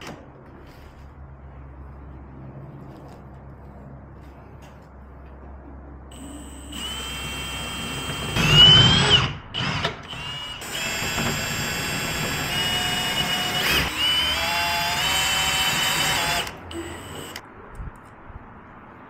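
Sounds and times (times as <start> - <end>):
cordless drill whining: 6.2 - 17.4.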